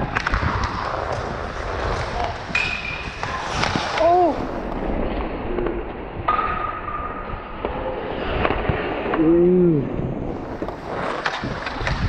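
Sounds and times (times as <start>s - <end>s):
skate blades scraping ice: 0.0s - 5.8s, 10.0s - 12.0s
stick and puck clacks: 0.0s - 9.3s, 10.4s - 12.0s.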